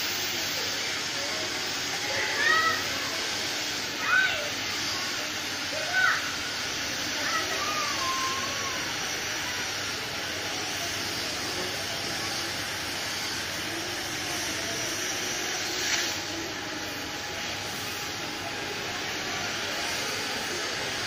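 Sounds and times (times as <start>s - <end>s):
cutting torch hissing: 0.0s - 21.0s.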